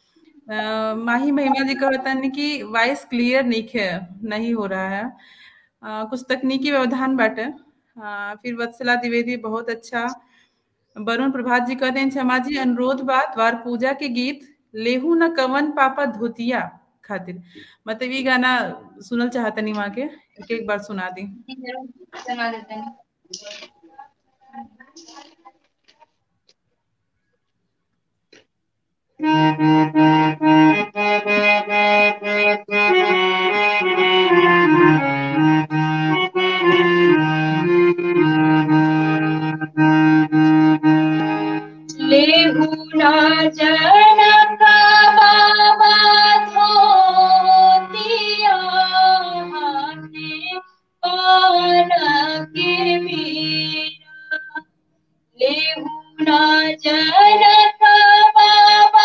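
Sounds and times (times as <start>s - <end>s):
harmonium chords: 0.0s - 4.3s, 29.2s - 54.6s, 55.5s - 59.0s
woman singing folk song: 41.9s - 54.6s, 55.4s - 59.0s.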